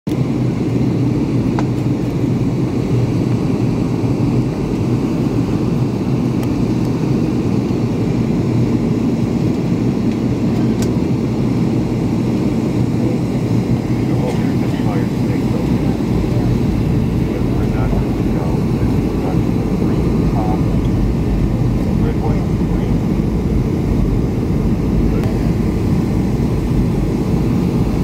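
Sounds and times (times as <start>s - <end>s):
jet engine drone: 0.1s - 28.0s
rushing airflow: 11.5s - 28.0s.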